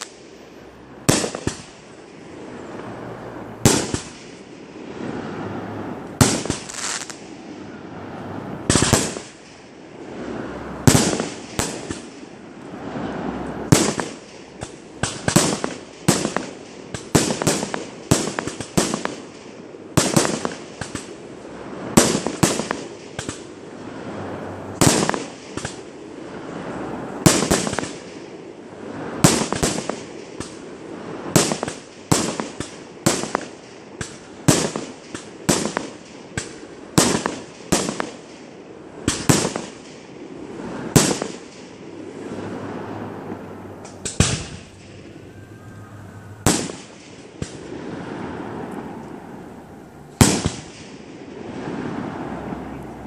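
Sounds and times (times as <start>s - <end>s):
firework shells bursting: 8.6s - 9.7s, 31.3s - 40.1s, 43.8s - 45.3s, 46.4s - 47.8s.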